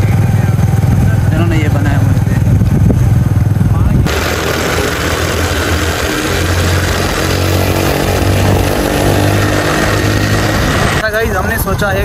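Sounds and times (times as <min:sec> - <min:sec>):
vehicle engine running: 0:00.0 - 0:11.1
road or wind hiss: 0:02.4 - 0:11.1.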